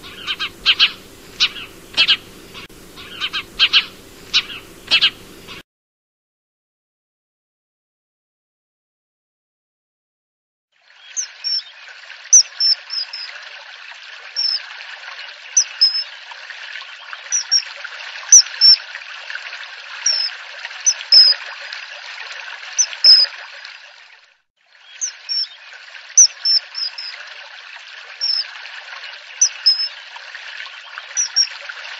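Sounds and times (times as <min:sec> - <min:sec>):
kingfisher shrill calls: 0:00.0 - 0:05.6, 0:11.2 - 0:11.7, 0:12.3 - 0:13.3, 0:14.4 - 0:14.6, 0:15.6 - 0:16.0, 0:17.3 - 0:17.6, 0:18.3 - 0:18.8, 0:20.1 - 0:20.3, 0:20.9 - 0:21.4, 0:22.8 - 0:23.3, 0:24.9 - 0:25.6, 0:26.2 - 0:27.1, 0:28.2 - 0:28.4, 0:29.4 - 0:29.9, 0:31.2 - 0:31.5
water trickling: 0:00.0 - 0:05.6, 0:10.8 - 0:31.9.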